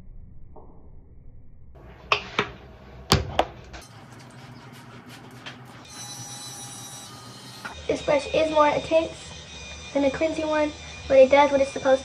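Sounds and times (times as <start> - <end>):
hands rubbing face: 3.8 - 5.9.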